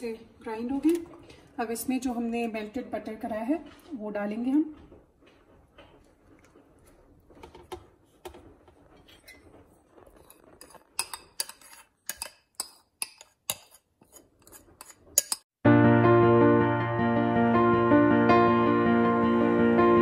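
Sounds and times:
metal spoon scraping bowl: 0:09.0 - 0:15.5.

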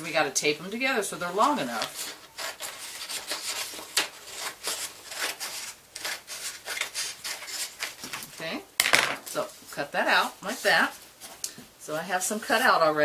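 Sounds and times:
paper rustling: 0:01.2 - 0:08.4.

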